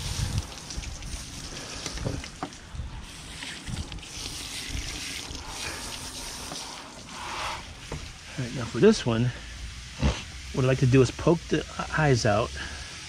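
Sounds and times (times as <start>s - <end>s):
wind buffeting microphone: 0.0s - 5.0s.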